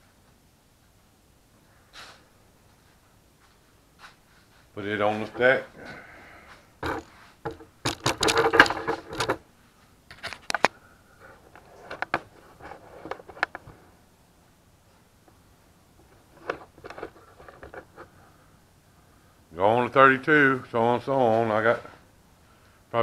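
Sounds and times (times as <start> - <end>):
metal clacks and scrapes: 6.8 - 9.4
metal ingots clattering: 7.9 - 9.4.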